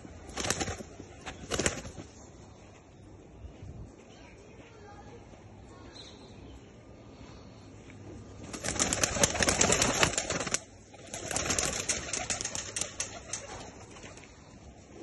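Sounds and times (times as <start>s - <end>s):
pigeons flapping wings: 0.0s - 2.2s, 8.4s - 14.4s.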